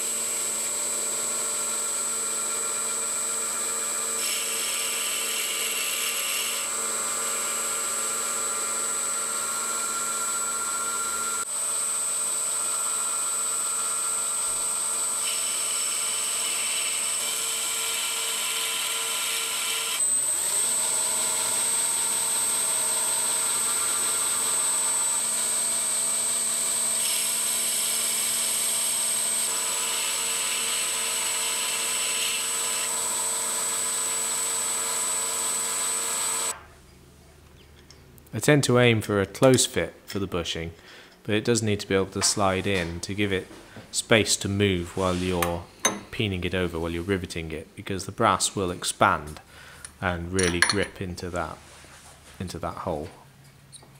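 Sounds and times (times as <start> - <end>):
boring bar cutting brass: 0.0 - 36.6, 45.3 - 46.1, 50.4 - 51.0
lathe whining: 0.0 - 36.6.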